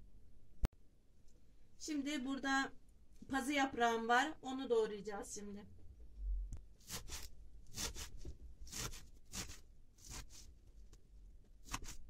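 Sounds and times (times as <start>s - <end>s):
knife chopping leaves on board: 6.8s - 10.4s, 11.6s - 12.0s.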